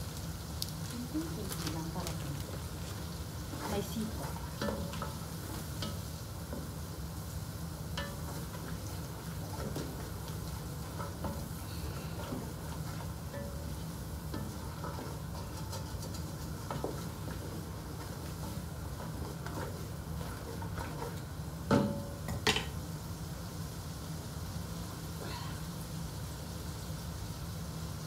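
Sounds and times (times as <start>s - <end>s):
food sizzling: 0.0s - 28.0s
spatula scraping metal pot: 14.3s - 21.3s.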